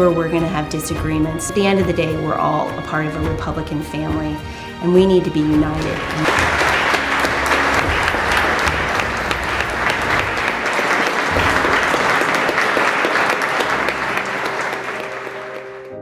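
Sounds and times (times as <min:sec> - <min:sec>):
background music: 0:00.0 - 0:16.0
audience applauding: 0:05.8 - 0:16.0.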